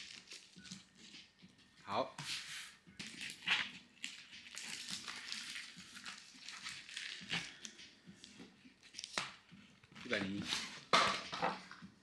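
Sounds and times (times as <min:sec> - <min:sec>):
packaging rustling and crinkling: 0:00.0 - 0:01.2, 0:03.0 - 0:09.3.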